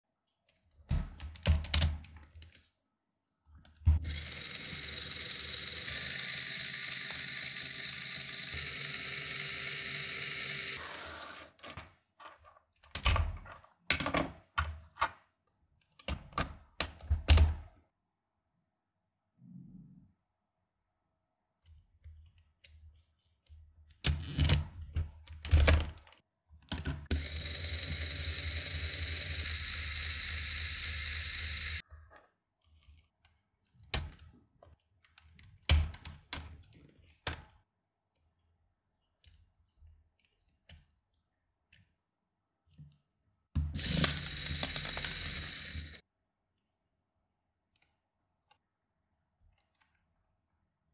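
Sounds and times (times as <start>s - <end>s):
electric motor whine: 4.1s - 10.8s, 27.2s - 31.8s, 43.8s - 46.0s.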